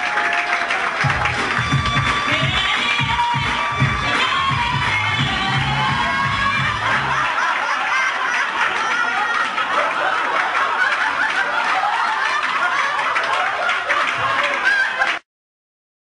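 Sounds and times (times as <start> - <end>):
music: 1.0 - 7.3
audience laughing: 5.2 - 15.2.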